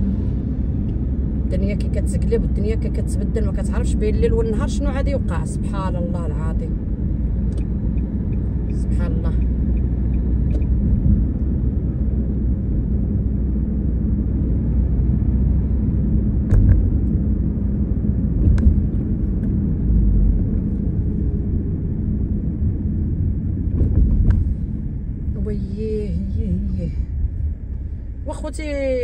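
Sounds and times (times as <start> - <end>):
car cabin road rumble: 0.0 - 29.0.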